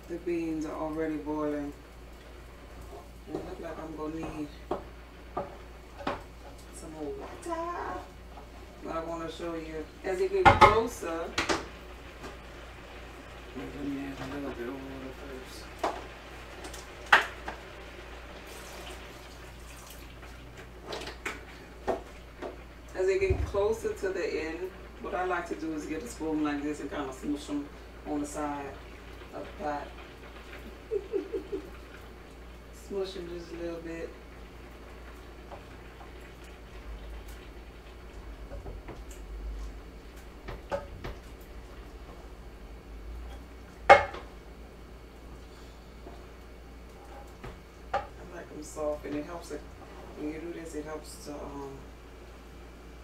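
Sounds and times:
watery hiss of boiling: 0.0s - 43.6s
water splashing into pot: 18.4s - 22.0s.

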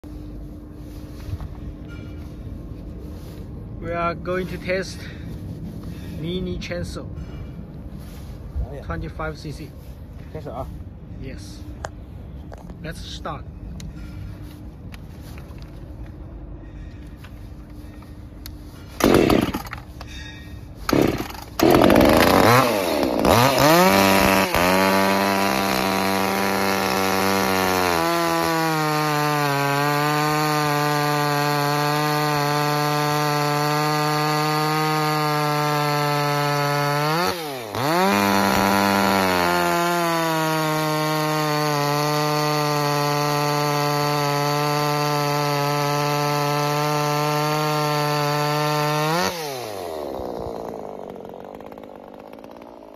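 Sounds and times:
chainsaw cutting log: 18.9s - 20.1s, 20.7s - 52.9s
chainsaw pull-start: 18.9s - 20.1s, 20.8s - 52.9s.

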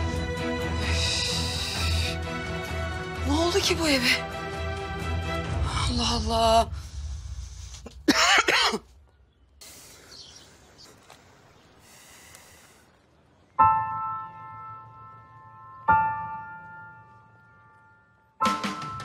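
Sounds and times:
throaty cough: 7.9s - 8.9s.

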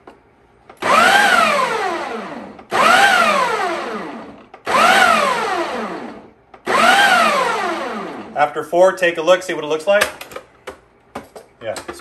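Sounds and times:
blender motor pulsing: 0.8s - 8.4s.

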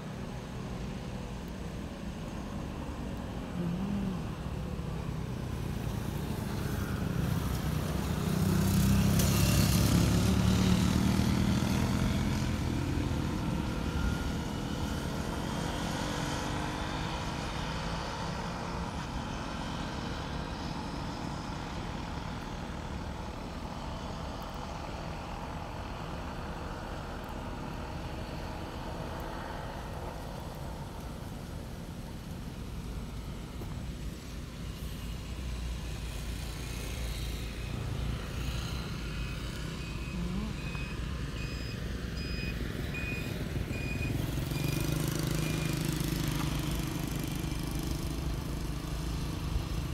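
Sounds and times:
outdoor background noise: 0.0s - 49.9s
vehicle passing by: 3.4s - 19.0s, 27.3s - 49.9s.

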